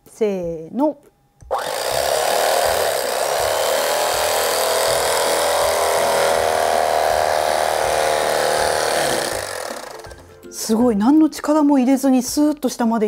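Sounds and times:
electric knife cutting bread: 1.4s - 10.3s.

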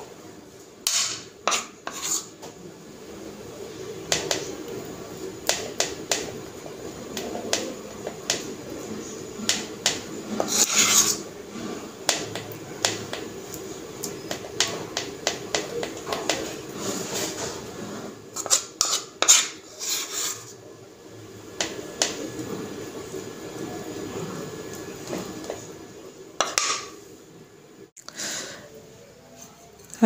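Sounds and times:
spoon scraping: 0.8s - 2.4s, 10.2s - 11.9s, 13.0s - 20.6s.

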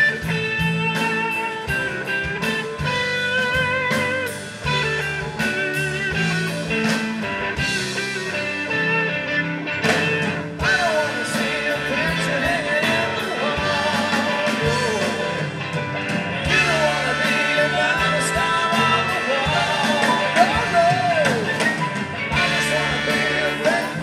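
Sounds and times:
horn section: 0.0s - 24.0s
live rock band playing: 0.0s - 24.0s
lead vocal singing: 10.5s - 24.0s.

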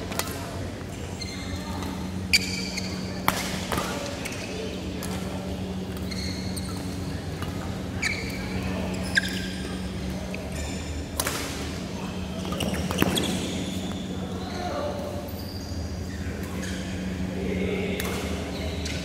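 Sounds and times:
shoes squeaking on court: 1.1s - 11.1s, 12.3s - 17.2s
racket hitting shuttlecock: 11.2s - 11.6s.

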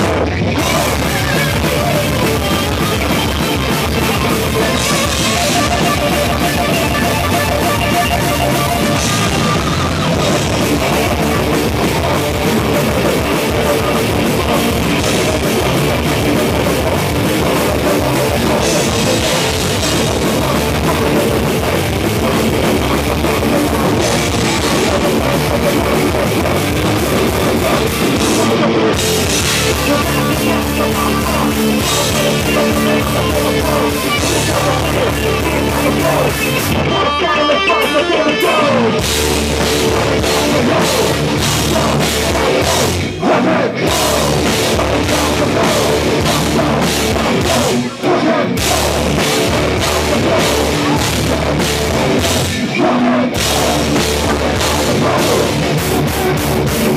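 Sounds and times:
pounding drum kit: 0.0s - 37.0s, 38.4s - 56.9s
distorted electric guitars: 0.0s - 56.9s.

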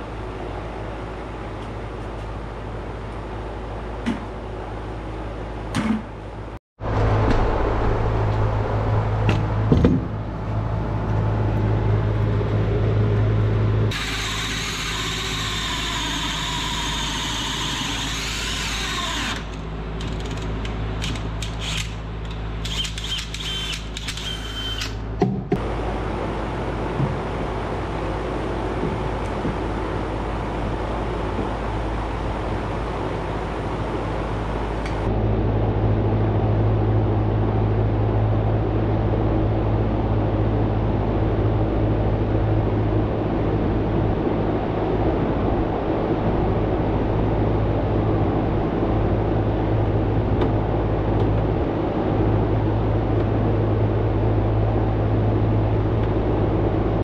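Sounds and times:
steady low hum: 0.0s - 57.0s
knocks from the work: 9.2s - 10.2s
power drill running: 13.9s - 20.1s, 22.6s - 25.0s.

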